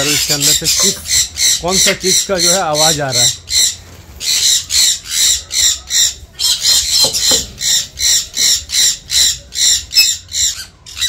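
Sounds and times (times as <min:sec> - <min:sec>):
parrot squawking: 0:00.0 - 0:11.0.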